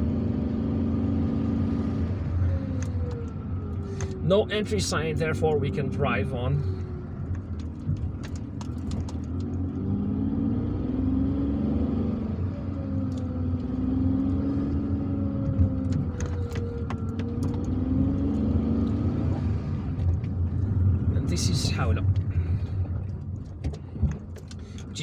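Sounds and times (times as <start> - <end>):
car engine and road noise: 0.0 - 25.0.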